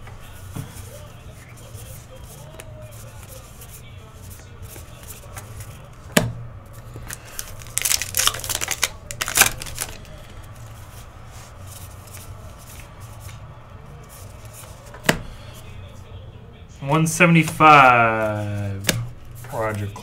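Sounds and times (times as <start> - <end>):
cards rustling: 6.7 - 15.8, 17.4 - 20.0.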